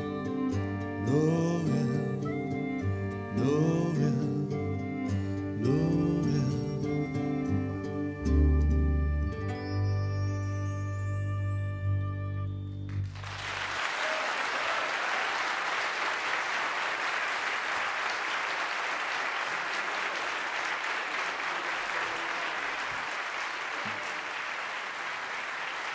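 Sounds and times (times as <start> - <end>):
audience applauding: 12.9 - 25.9.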